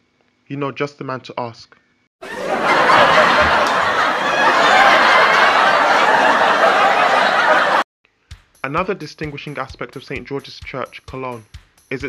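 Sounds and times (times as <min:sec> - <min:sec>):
audience laughter: 0:02.2 - 0:07.8.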